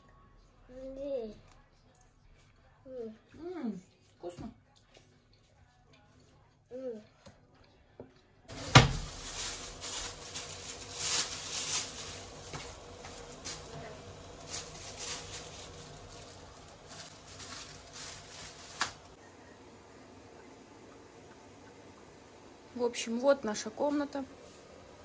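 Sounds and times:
rustling: 0:08.5 - 0:19.2.

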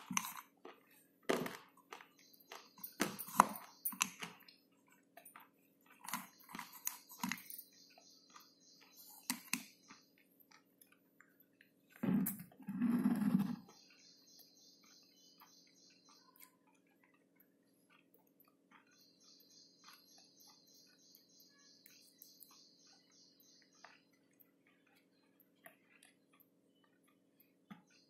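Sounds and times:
slate pencil being chewed: 0:00.0 - 0:11.7.

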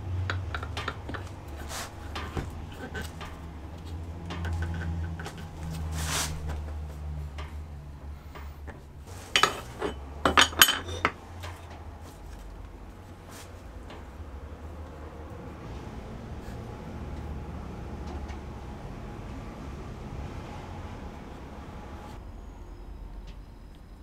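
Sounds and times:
metal parts clinking: 0:09.2 - 0:12.4.

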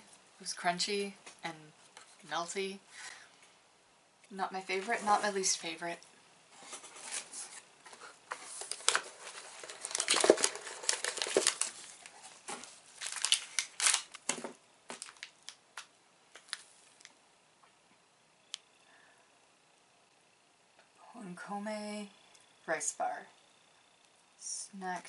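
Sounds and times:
plastic wrappers crinkling: 0:06.6 - 0:17.2.

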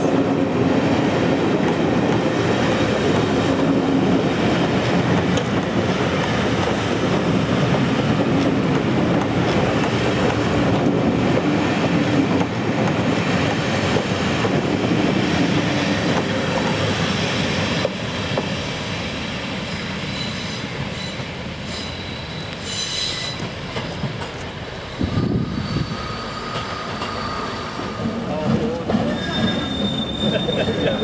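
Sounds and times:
train wheels rumbling on rail: 0:00.0 - 0:31.0
high wheel squeal: 0:19.7 - 0:23.6, 0:25.1 - 0:31.0.

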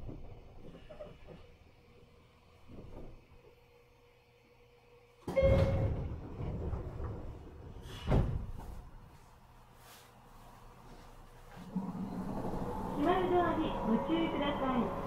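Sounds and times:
train door hiss and rumble: 0:07.7 - 0:08.9.

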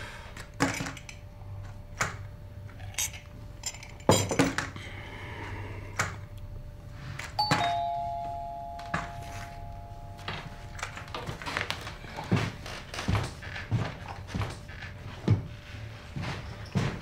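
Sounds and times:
two-note doorbell chime: 0:07.4 - 0:11.4.

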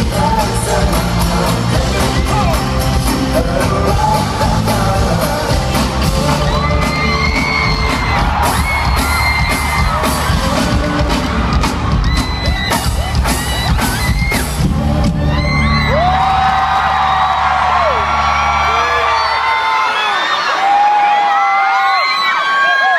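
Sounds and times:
live pop band and singers: 0:00.0 - 0:16.7
fans screaming and whooping: 0:00.1 - 0:22.9.

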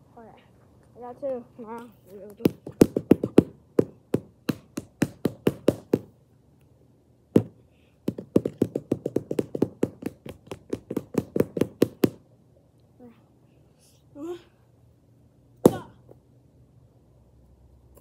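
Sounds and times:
fists hitting punching bag: 0:02.4 - 0:06.1, 0:15.6 - 0:16.0.

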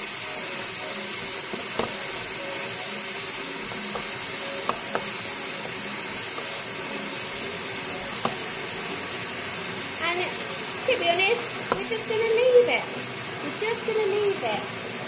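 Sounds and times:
bacon sizzling in a frying pan: 0:00.0 - 0:15.0
wooden spoon knocking on a pan: 0:01.5 - 0:02.3, 0:03.7 - 0:05.2, 0:08.1 - 0:08.5, 0:11.6 - 0:12.0.

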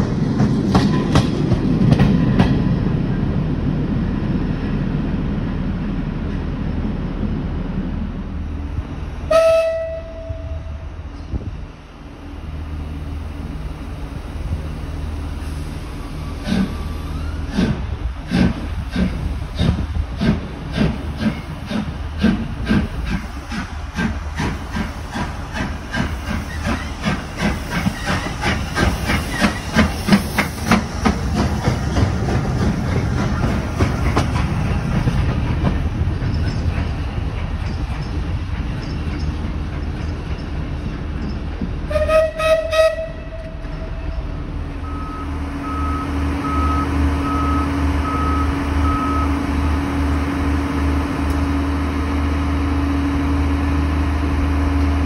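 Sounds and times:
train whistle blast: 0:09.3 - 0:10.8, 0:41.9 - 0:44.1
steam locomotive exhaust chuffs: 0:12.5 - 0:55.0.

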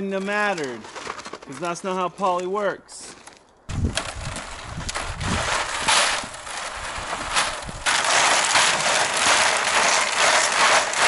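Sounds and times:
tubing coil grinding rasp: 0:04.1 - 0:11.0.

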